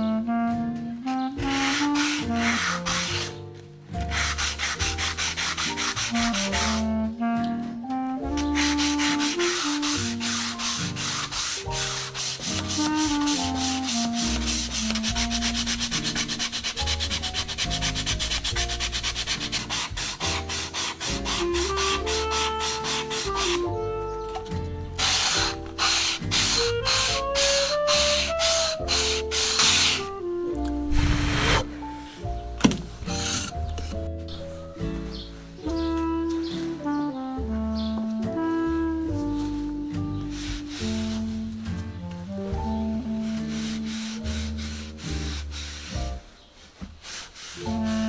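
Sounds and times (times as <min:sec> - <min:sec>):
sandpaper rasping on wood: 0:01.4 - 0:03.4, 0:04.0 - 0:06.9, 0:08.3 - 0:23.7, 0:25.0 - 0:30.2, 0:33.1 - 0:34.0, 0:40.2 - 0:41.6, 0:43.1 - 0:48.0.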